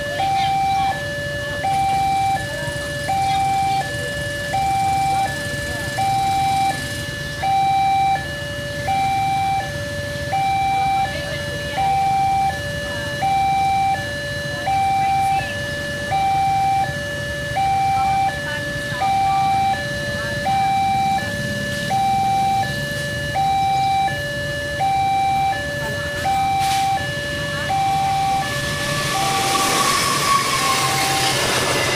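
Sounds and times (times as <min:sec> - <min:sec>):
level crossing alarm two-tone: 0:00.0 - 0:31.9
motorbike traffic rumble: 0:00.0 - 0:31.9.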